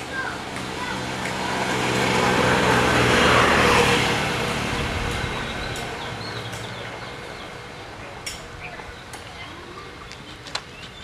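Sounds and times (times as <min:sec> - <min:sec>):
vehicle driving past: 0:00.7 - 0:07.8.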